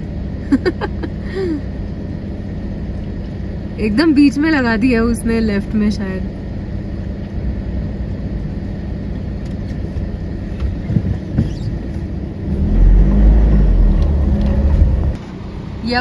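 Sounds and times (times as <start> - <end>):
engine and road noise: 0.0 - 16.0
loud low rumble: 12.2 - 15.2.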